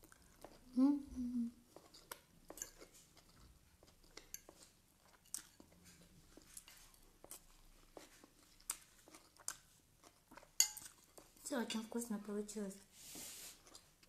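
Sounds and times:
person chewing crunchy food: 0:00.0 - 0:00.7, 0:01.6 - 0:11.4.

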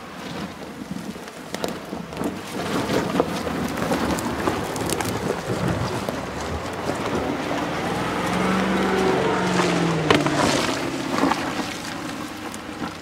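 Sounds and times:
vehicle engine at low revs: 0:03.4 - 0:13.0.

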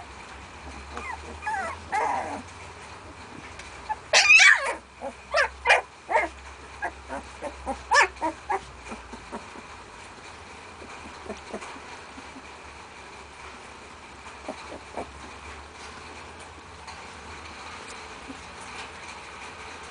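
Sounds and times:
puppies yelping and squealing: 0:00.7 - 0:02.5, 0:03.8 - 0:09.8, 0:10.7 - 0:12.5, 0:14.4 - 0:15.4.

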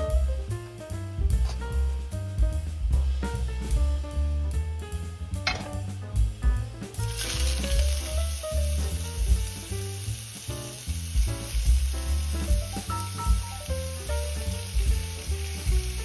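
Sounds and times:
background music: 0:00.0 - 0:16.0
meat sizzling in hot oil: 0:06.9 - 0:16.0.

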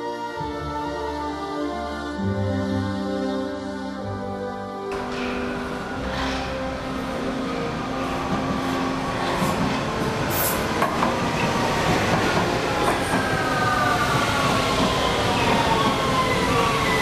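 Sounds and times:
metro train wheels rumbling on rails: 0:04.9 - 0:17.0.

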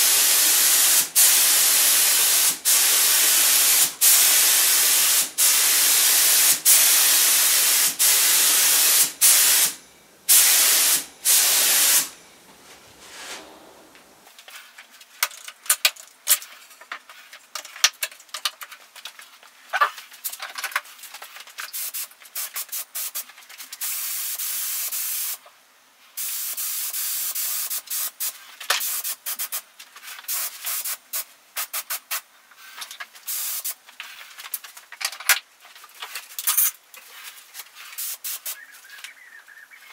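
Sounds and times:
paint spray gun hissing: 0:00.0 - 0:14.3, 0:21.7 - 0:23.2, 0:23.8 - 0:25.4, 0:26.2 - 0:29.6, 0:30.3 - 0:32.2, 0:33.3 - 0:33.8, 0:37.9 - 0:38.7.

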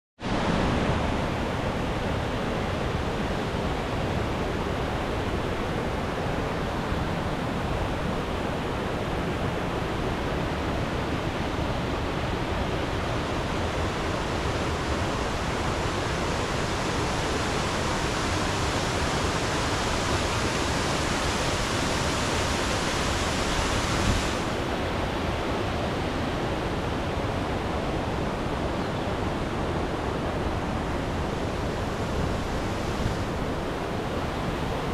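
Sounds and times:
waterfall rushing: 0:11.8 - 0:25.6, 0:28.2 - 0:34.9.

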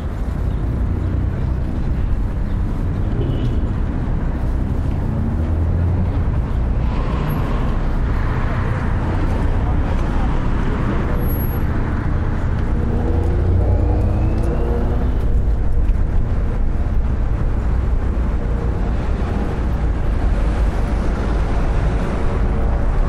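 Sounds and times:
traffic rumble: 0:00.0 - 0:23.0.

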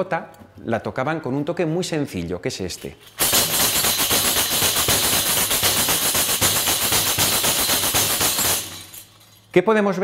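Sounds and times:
tambourine jingling: 0:02.8 - 0:09.6
hand strikes on tambourine head: 0:03.2 - 0:09.2.

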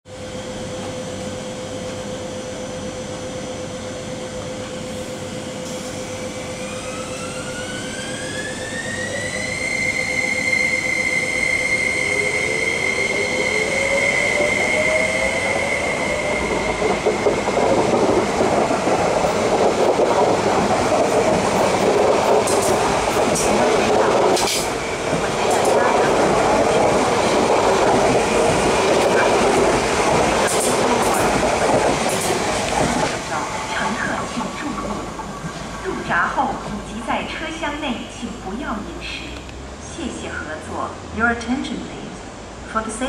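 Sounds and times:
train traction motor whine: 0:00.1 - 0:37.4
wheels rumbling on rail: 0:11.3 - 0:41.1.

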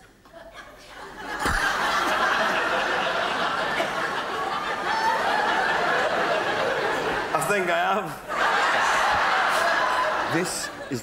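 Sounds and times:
large audience laughing: 0:00.0 - 0:11.0.

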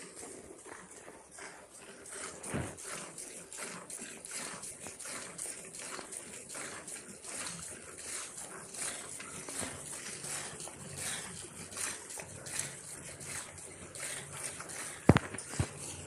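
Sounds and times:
milk squirting into metal pot: 0:02.8 - 0:16.0.

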